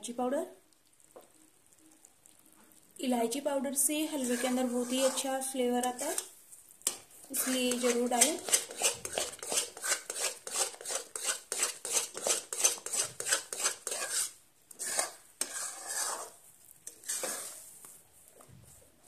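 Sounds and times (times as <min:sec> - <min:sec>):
metal spatula scraping pan: 0:04.0 - 0:06.3, 0:07.3 - 0:17.7.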